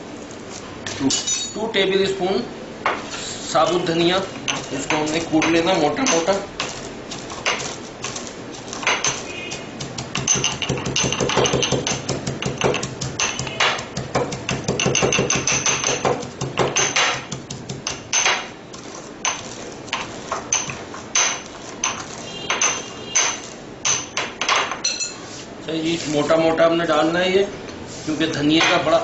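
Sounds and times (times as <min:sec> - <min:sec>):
pestle pounding seeds in mortar: 0:04.3 - 0:24.4.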